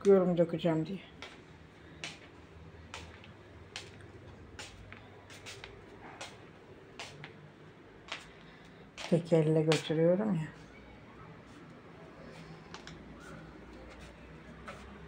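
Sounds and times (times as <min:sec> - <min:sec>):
faint footsteps on tile floor: 0:00.0 - 0:10.8, 0:11.4 - 0:15.0.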